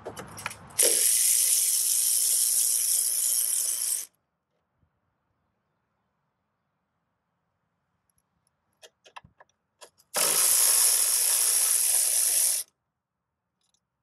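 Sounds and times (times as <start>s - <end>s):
electric ratchet whirring: 0.8s - 4.1s, 10.2s - 12.7s.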